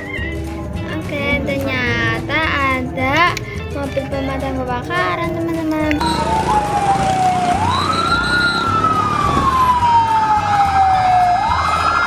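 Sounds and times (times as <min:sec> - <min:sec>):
fire engine siren wailing: 0:06.0 - 0:12.0.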